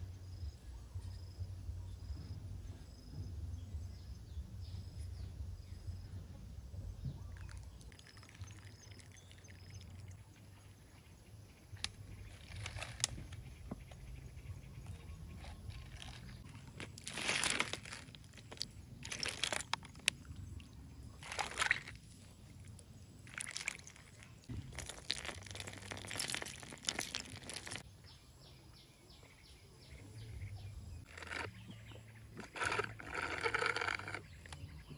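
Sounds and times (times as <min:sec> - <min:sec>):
tea ladled into cups: 0:07.2 - 0:10.5, 0:15.3 - 0:27.8
sipping through straws: 0:23.3 - 0:27.8, 0:32.4 - 0:34.4.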